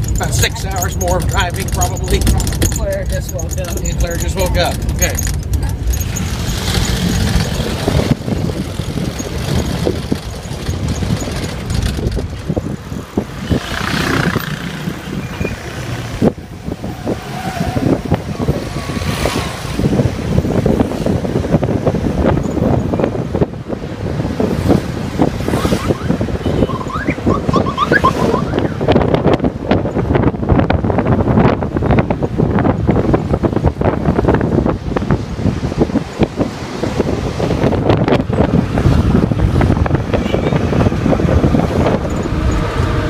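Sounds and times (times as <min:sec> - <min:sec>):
knocks and rattles: 0:00.0 - 0:15.0
vehicle engine and road rumble: 0:00.0 - 0:43.0.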